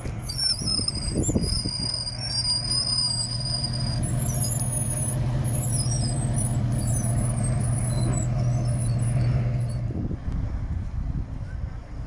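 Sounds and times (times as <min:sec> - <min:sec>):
engine running with low drone: 0:00.0 - 0:12.0
thin high squeals and chirps: 0:00.2 - 0:09.8.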